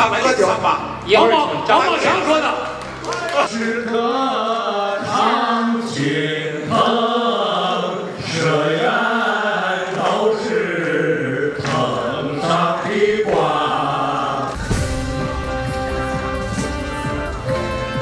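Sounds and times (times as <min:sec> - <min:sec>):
men singing together: 0:03.4 - 0:14.8.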